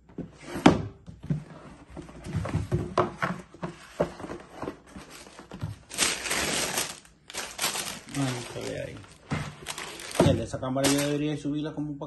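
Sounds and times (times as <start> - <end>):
cardboard box knocks and scrapes: 0.2 - 5.8
cardboard rustle: 1.8 - 11.2.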